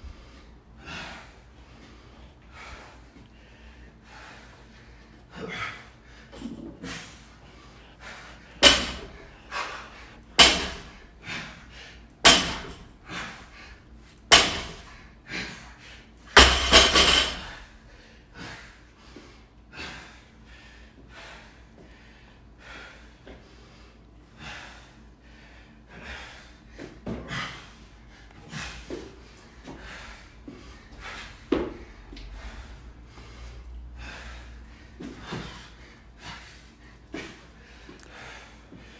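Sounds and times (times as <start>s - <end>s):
barbell dropped on rubber mat: 8.6s - 9.1s, 12.3s - 12.8s, 14.3s - 14.8s, 16.4s - 17.5s.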